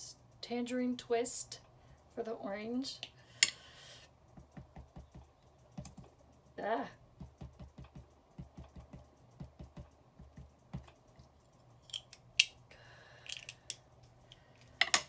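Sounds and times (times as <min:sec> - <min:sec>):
ink pad tapping on stamps: 0:04.3 - 0:06.1, 0:07.2 - 0:11.0
sharp clicks and knocks: 0:04.3 - 0:06.5, 0:07.2 - 0:12.6.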